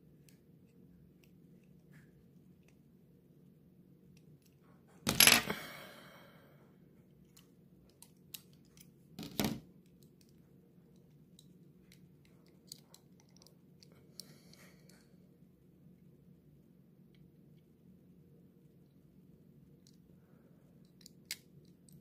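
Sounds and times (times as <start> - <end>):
light clicks of model car parts: 7.2 - 8.9, 9.8 - 15.1.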